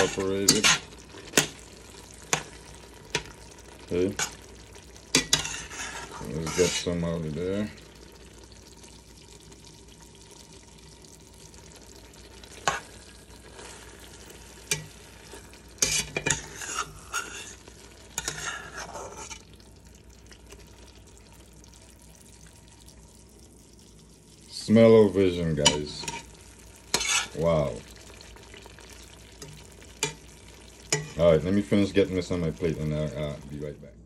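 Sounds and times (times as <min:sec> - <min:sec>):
metal spatula scraping steel pot: 0:00.0 - 0:01.6, 0:04.1 - 0:04.4, 0:05.1 - 0:07.0, 0:12.6 - 0:19.5, 0:25.6 - 0:26.3, 0:26.9 - 0:27.4, 0:30.9 - 0:31.2.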